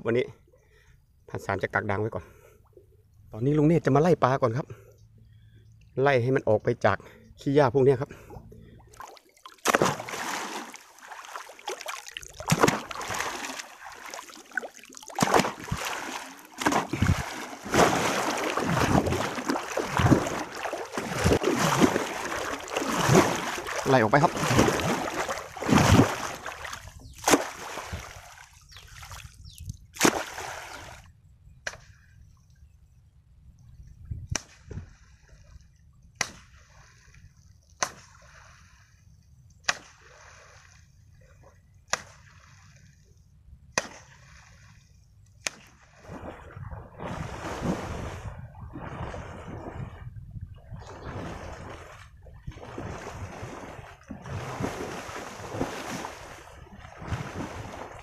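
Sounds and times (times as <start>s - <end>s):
sloshing through water: 8.0s - 31.1s, 43.8s - 58.0s
water slapping and splashing: 8.8s - 31.1s, 34.3s - 39.0s, 39.6s - 43.0s, 43.8s - 58.0s.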